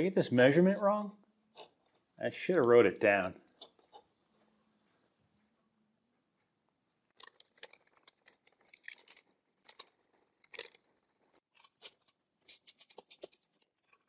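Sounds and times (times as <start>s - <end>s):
faint metal clicks and rattles: 7.0s - 12.2s.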